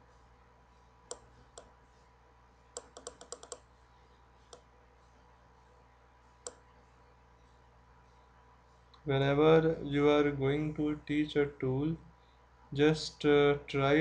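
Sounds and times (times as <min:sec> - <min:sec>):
faint electrical hum: 0:00.0 - 0:14.0
computer mouse clicking: 0:01.1 - 0:01.7, 0:02.7 - 0:03.7, 0:06.4 - 0:06.7.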